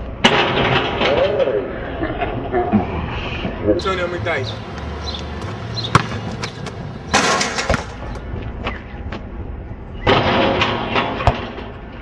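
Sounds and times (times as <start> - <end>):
basketball rim and backboard rattling: 0.2 - 1.4, 5.9 - 8.2, 10.0 - 11.9
basketball bouncing on asphalt: 4.7 - 9.4.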